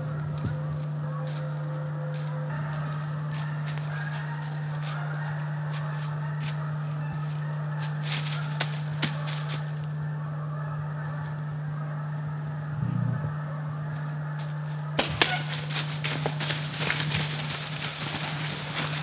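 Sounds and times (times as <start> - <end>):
steady low hum: 0.0 - 19.0
deer walking through dry leaves: 0.1 - 10.2, 13.9 - 19.0.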